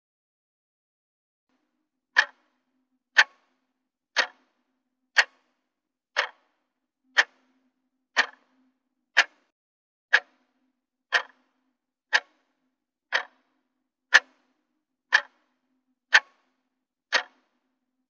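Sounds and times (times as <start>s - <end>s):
clock ticking: 2.2s - 2.6s, 3.2s - 3.5s, 4.2s - 4.6s, 5.2s - 5.6s, 6.2s - 7.5s, 8.2s - 8.6s, 9.2s - 9.5s, 10.1s - 13.5s, 14.1s - 14.4s, 15.1s - 15.5s, 16.1s - 16.5s, 17.1s - 17.5s.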